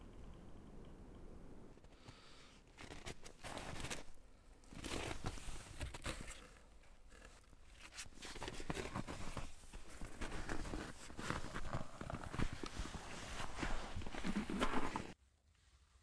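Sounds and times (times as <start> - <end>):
heavy clothing rustling: 7.3 - 15.2.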